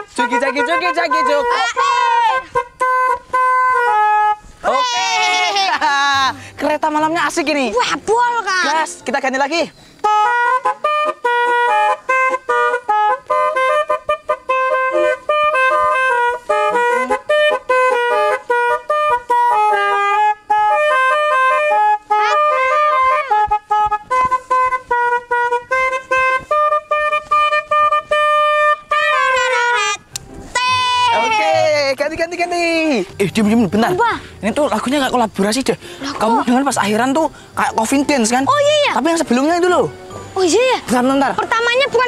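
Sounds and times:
musical air horns playing tune: 0:00.0 - 0:05.6, 0:09.8 - 0:31.6.

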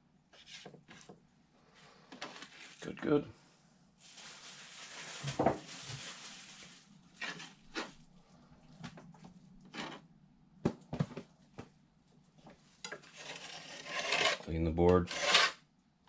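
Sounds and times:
knife scraping plastic cutting board: 0:00.4 - 0:01.2, 0:07.2 - 0:07.9, 0:09.7 - 0:10.0, 0:12.9 - 0:15.6.

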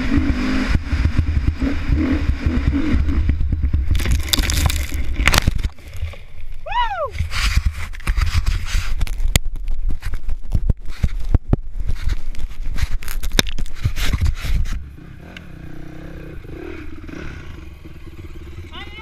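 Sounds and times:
dirt bike engine running: 0:00.0 - 0:06.5, 0:07.1 - 0:19.0
camera case scraping microphone: 0:07.2 - 0:14.8.

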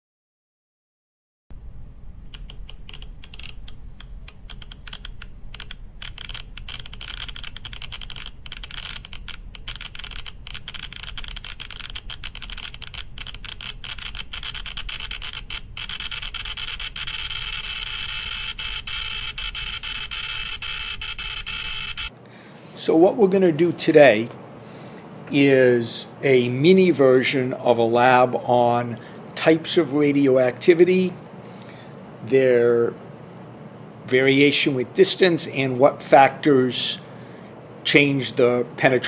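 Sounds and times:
geiger counter clicking: 0:02.3 - 0:22.1.

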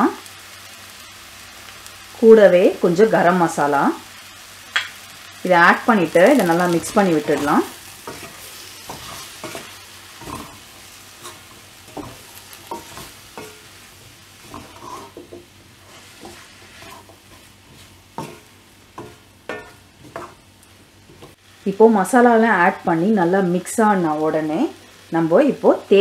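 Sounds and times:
food sizzling in oil: 0:00.0 - 0:26.0
wooden spatula scraping a pan: 0:06.1 - 0:20.4.

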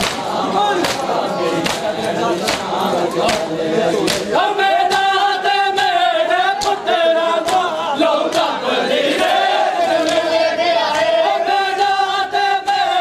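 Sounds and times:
hands slapping bare chests: 0:00.0 - 0:05.2, 0:05.8 - 0:08.6, 0:10.0 - 0:11.2
men chanting a lament: 0:00.0 - 0:13.0.

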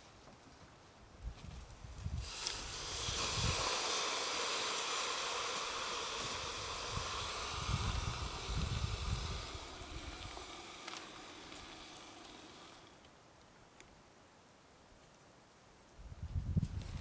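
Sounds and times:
water sizzling on hot stones: 0:02.2 - 0:13.0.

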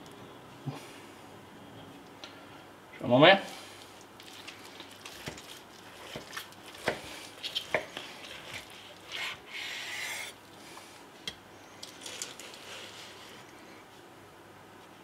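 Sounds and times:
knife cutting crisp bacon crust: 0:05.0 - 0:10.1.

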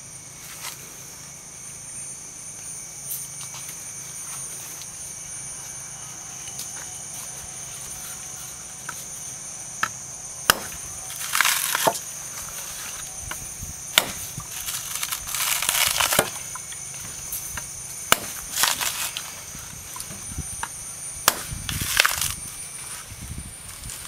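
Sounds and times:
machete chopping coconut husk: 0:09.8 - 0:12.2, 0:13.2 - 0:22.4
husk ripping away: 0:14.0 - 0:16.5.

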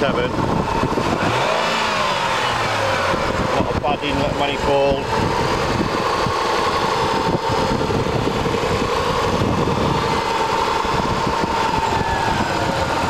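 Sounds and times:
car engine idling: 0:00.0 - 0:13.0
steady whine: 0:00.0 - 0:13.0.

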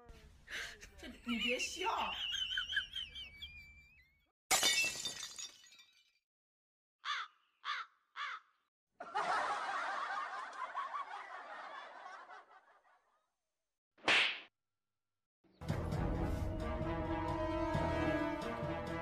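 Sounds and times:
canned laughter: 0:00.5 - 0:04.1, 0:09.0 - 0:13.2
crow cawing: 0:07.0 - 0:08.7.

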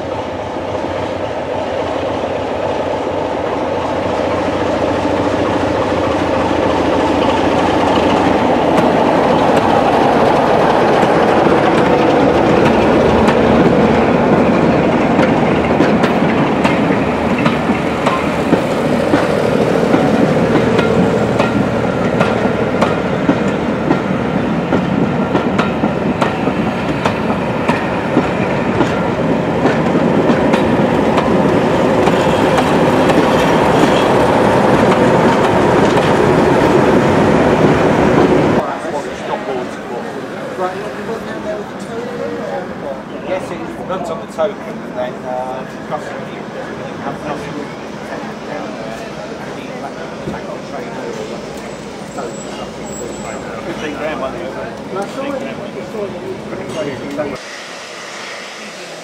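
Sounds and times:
diesel locomotive engine working: 0:00.0 - 0:59.0
second diesel locomotive passing: 0:00.0 - 0:59.0
train wheels clattering over rail joints: 0:03.6 - 0:38.6.

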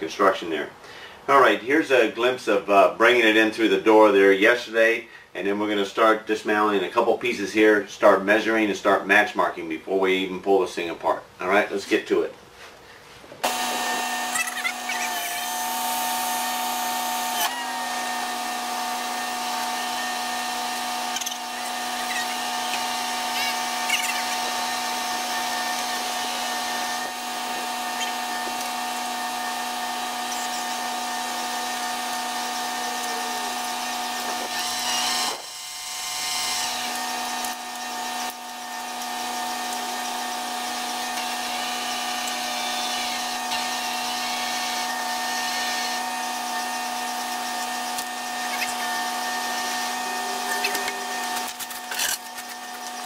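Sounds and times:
crane machine whine: 0:49.3 - 0:52.2.

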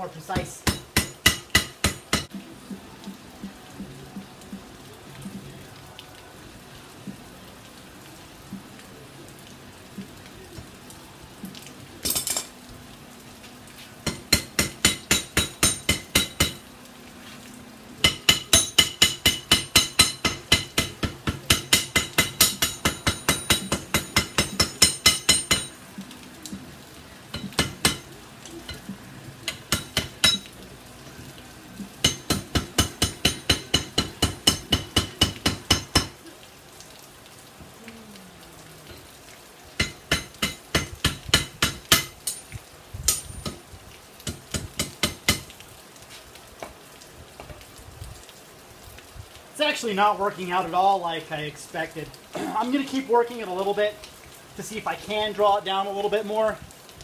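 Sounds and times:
hammer striking metal on anvil: 0:00.4 - 0:02.3, 0:14.1 - 0:16.6, 0:18.1 - 0:25.8, 0:27.3 - 0:28.1, 0:29.5 - 0:30.5, 0:32.0 - 0:36.1.

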